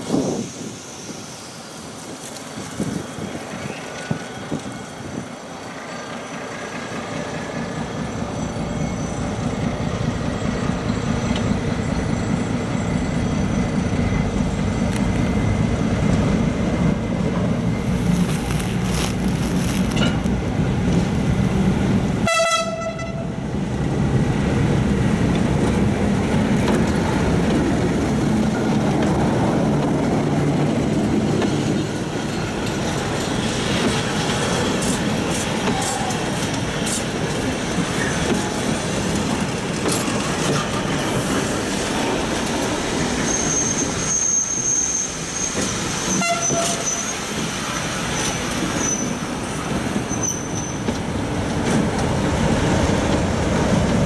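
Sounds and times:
diesel locomotive engine: 0.0s - 54.0s
wheels rumbling on rails: 0.0s - 54.0s
locomotive horn toot: 22.2s - 23.3s, 46.1s - 47.2s.

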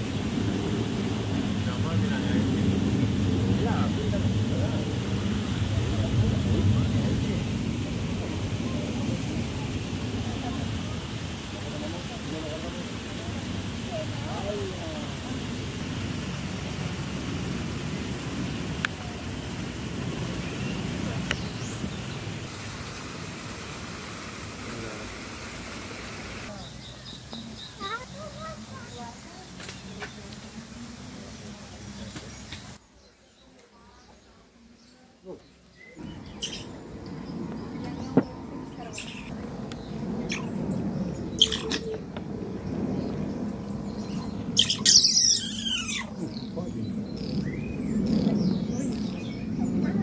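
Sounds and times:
wind rumbling on microphone: 0.0s - 23.5s, 36.0s - 50.0s
outdoor background hiss: 0.0s - 50.0s
mongooses chirping: 36.2s - 36.8s, 38.8s - 39.3s, 41.4s - 42.0s, 44.1s - 46.2s.

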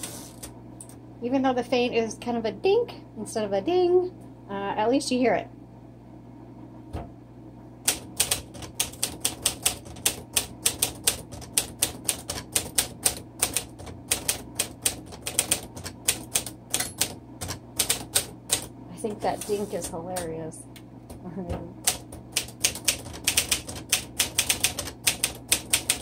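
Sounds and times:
manual typewriter typing: 7.9s - 18.7s, 21.8s - 26.0s.

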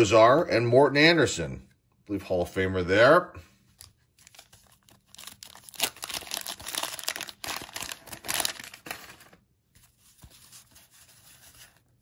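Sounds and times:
paper wrapper tearing and crinkling: 3.8s - 12.0s.

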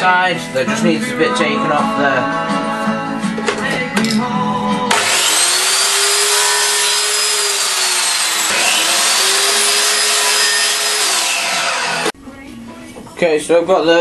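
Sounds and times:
mitre saw cutting wood: 4.9s - 12.2s.

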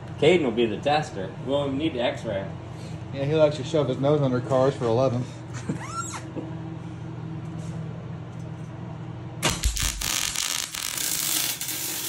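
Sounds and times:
steady low hum: 0.0s - 12.0s
welder arc crackling: 9.4s - 12.0s.

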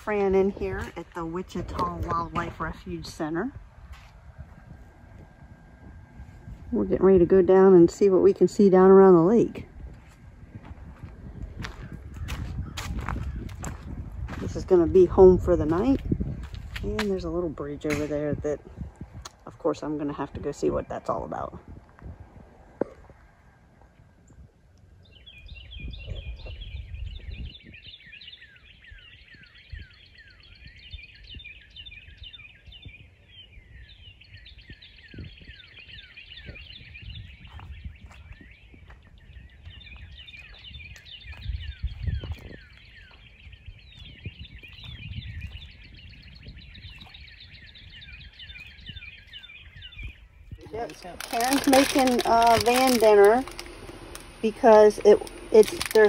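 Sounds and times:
wind rumbling on microphone: 0.0s - 56.0s
chorus of high chirping calls: 25.2s - 56.0s.

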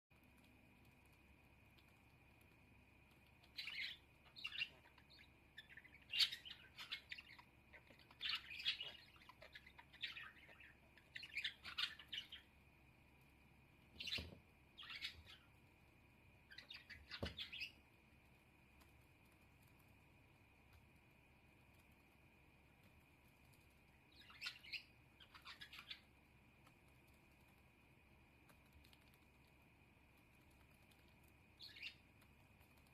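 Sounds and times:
budgerigar twittering: 3.4s - 12.5s, 14.0s - 15.5s, 16.5s - 17.8s, 24.1s - 26.1s, 31.6s - 32.0s.

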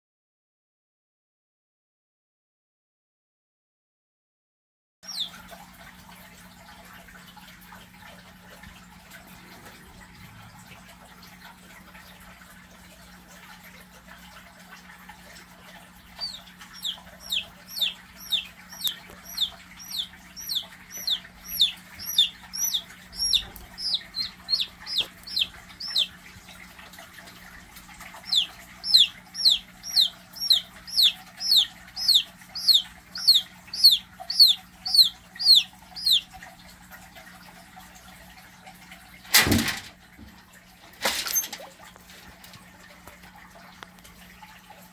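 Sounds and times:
chick peeping: 5.1s - 5.4s, 16.1s - 26.2s, 28.1s - 36.4s.

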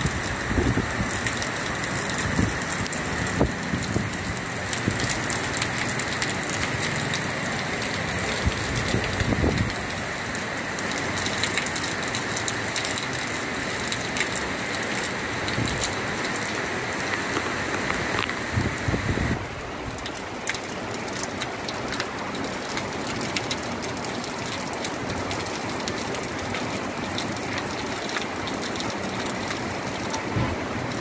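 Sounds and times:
wind gusts on microphone: 0.0s - 1.3s, 8.4s - 9.9s, 17.8s - 19.7s
heavy rain pouring: 0.0s - 31.0s
raindrops hitting close by: 0.0s - 31.0s.

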